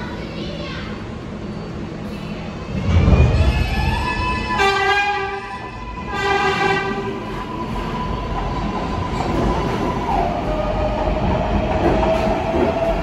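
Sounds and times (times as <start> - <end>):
train rumble: 0.0 - 13.0
subway train horn: 3.3 - 7.5.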